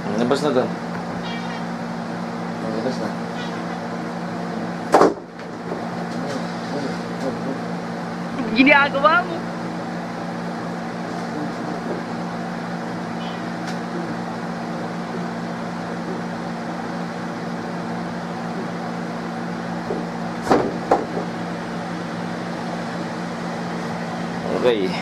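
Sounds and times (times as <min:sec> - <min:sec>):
steady low hum: 0:00.0 - 0:25.0
sharp knocks: 0:04.9 - 0:05.3, 0:19.9 - 0:21.3.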